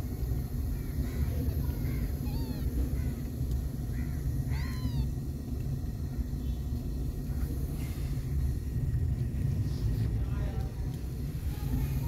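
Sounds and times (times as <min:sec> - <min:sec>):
steady low rumble: 0:00.0 - 0:12.0
kitten mewing: 0:01.8 - 0:03.2, 0:04.4 - 0:05.2.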